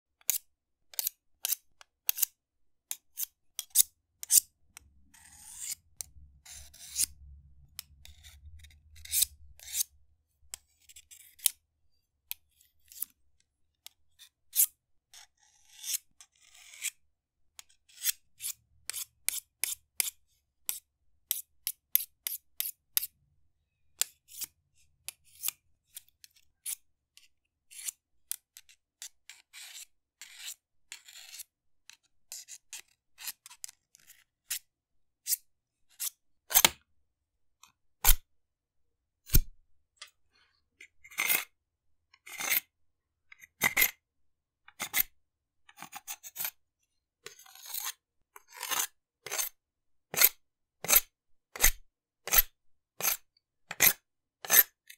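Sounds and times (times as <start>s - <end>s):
sharpening scraping strokes: 0.2s - 7.2s, 7.8s - 9.9s, 12.6s - 13.2s, 13.8s - 17.0s, 17.6s - 23.1s, 24.0s - 31.5s, 35.3s - 36.7s, 39.3s - 39.5s, 40.9s - 41.6s, 42.2s - 42.7s, 47.3s - 54.7s.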